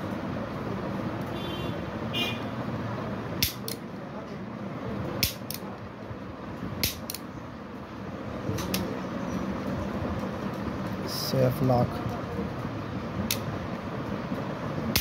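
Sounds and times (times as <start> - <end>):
steady background hum: 0.0 - 15.0
pistol metallic clicks: 3.4 - 3.8, 5.2 - 5.6, 6.8 - 7.3.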